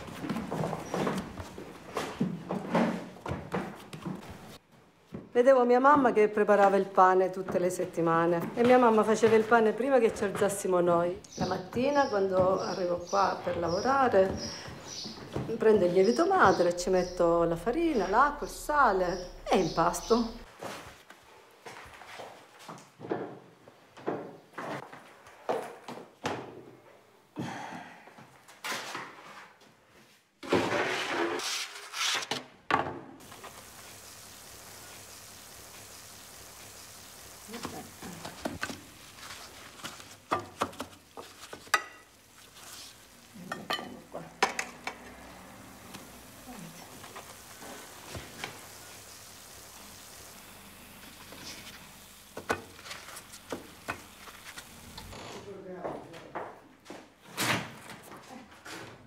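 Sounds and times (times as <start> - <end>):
dough sizzling in hot oil: 33.2 - 55.1.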